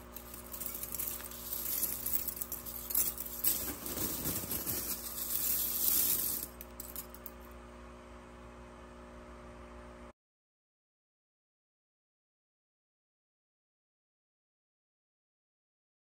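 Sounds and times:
metal flakes clinking in plastic tub: 0.0s - 7.3s
faint steady hum: 0.0s - 10.1s.

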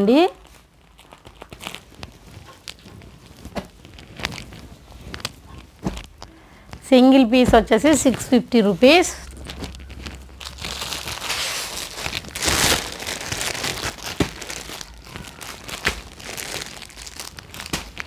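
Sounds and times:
plastic packets crinkling: 0.0s - 18.0s.

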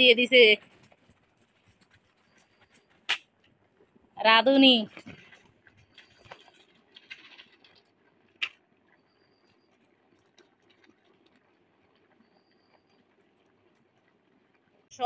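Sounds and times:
plastic packet rustling: 4.9s - 8.4s.

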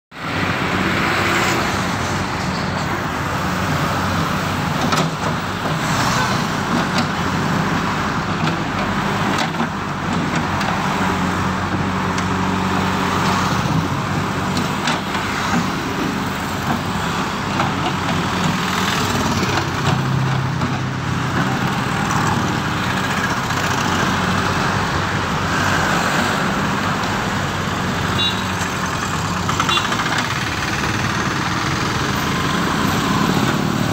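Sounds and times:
road traffic passing: 0.1s - 33.9s
diesel engine running: 1.8s - 33.9s.

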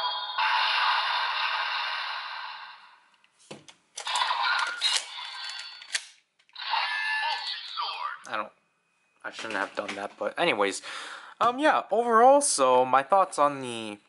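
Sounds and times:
electronic toy sound effect: 0.0s - 2.9s, 4.0s - 5.9s, 6.6s - 8.2s.

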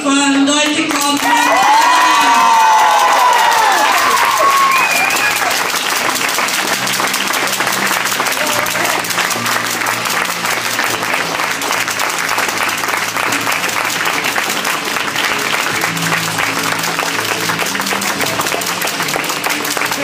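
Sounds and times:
audience applauding: 0.6s - 20.0s
music with held low notes: 4.2s - 20.0s.

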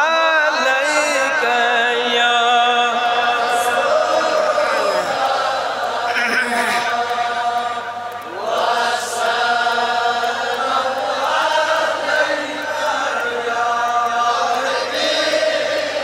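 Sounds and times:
man chanting in long notes: 0.0s - 5.2s.

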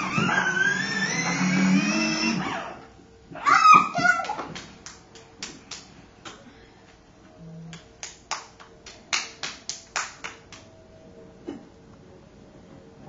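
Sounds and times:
child clapping hands: 4.0s - 6.4s, 7.7s - 10.7s.

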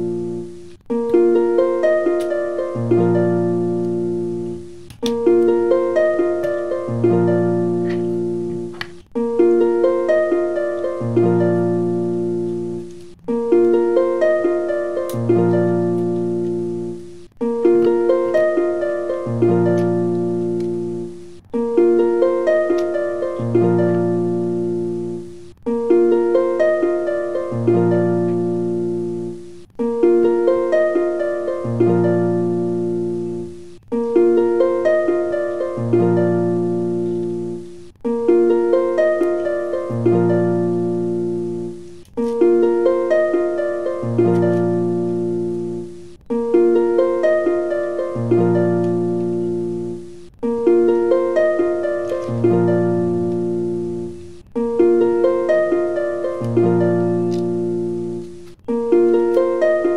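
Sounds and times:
plucked harp-like music: 0.0s - 59.9s.

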